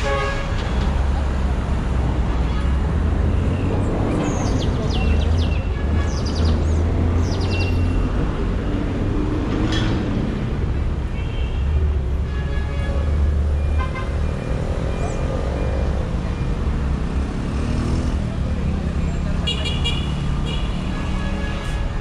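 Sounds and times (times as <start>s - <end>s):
passing cars rumble: 0.0s - 11.1s, 13.0s - 22.0s
birds chirping: 3.4s - 8.0s.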